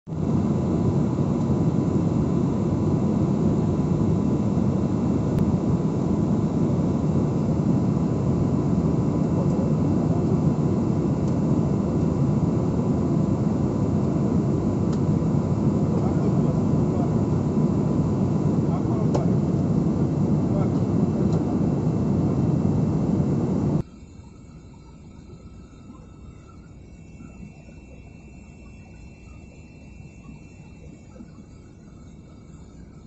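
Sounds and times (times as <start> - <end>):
jet cabin engine rush: 0.1 - 23.8.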